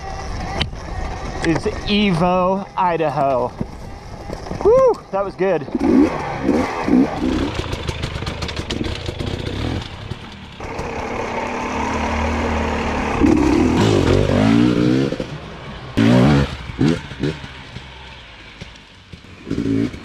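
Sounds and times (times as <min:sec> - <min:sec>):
dirt bike engine revving: 0:00.0 - 0:20.0
rapid clatter: 0:05.8 - 0:11.6.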